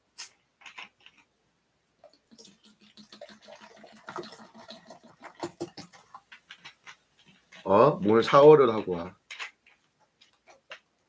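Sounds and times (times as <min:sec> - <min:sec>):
cola pouring into cup: 0:02.0 - 0:06.4.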